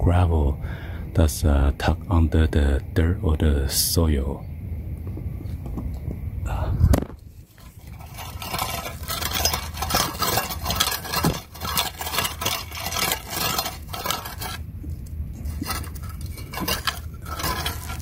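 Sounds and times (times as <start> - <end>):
metal rake scraping gravel: 7.4 - 18.0.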